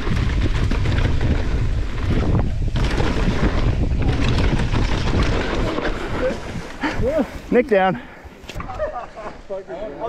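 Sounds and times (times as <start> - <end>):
bike rattling over bumps: 0.0 - 7.5
wind buffeting microphone: 0.0 - 7.9
tyres rumbling on dirt trail: 0.0 - 10.0.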